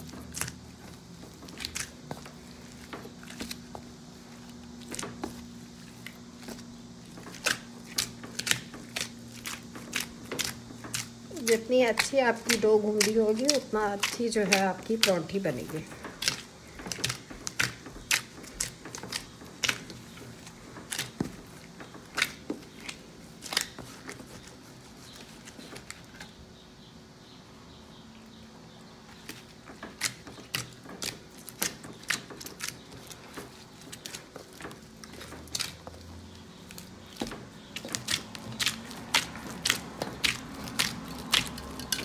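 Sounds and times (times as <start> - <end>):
dough smacks and squelching: 0.0 - 26.4, 28.8 - 42.0
hands kneading dough: 0.0 - 42.0.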